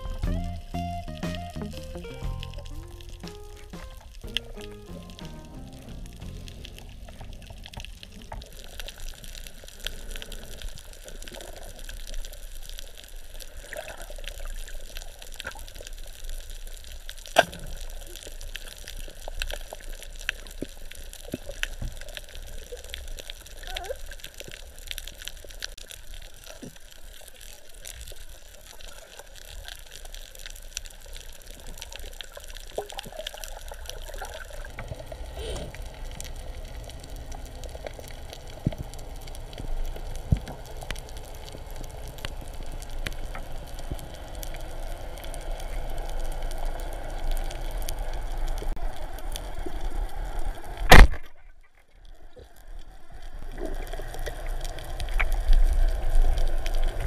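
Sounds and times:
underwater water noise: 0.0 - 57.0
loud sharp crack: 50.9 - 51.3.

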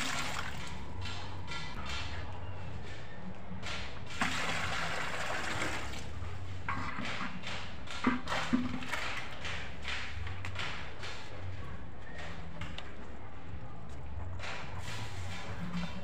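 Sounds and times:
water pouring into plastic tub: 4.2 - 6.1.

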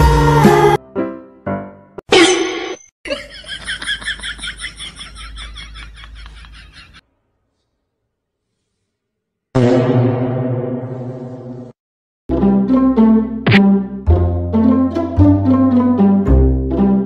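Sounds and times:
person laughing: 3.1 - 7.0.

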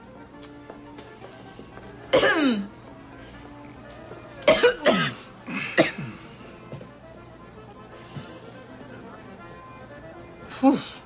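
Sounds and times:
soft background music: 0.0 - 11.0
person coughing grunts: 2.1 - 2.7, 4.5 - 6.2.

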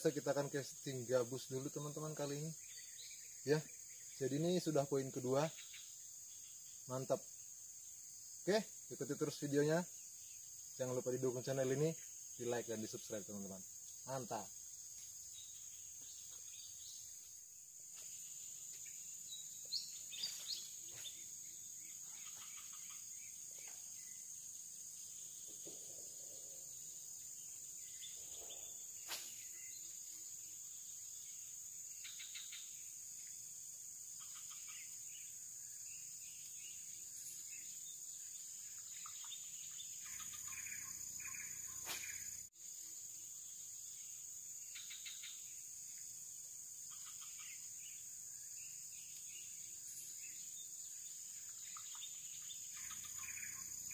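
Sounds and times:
insect chorus drone: 0.0 - 53.9.

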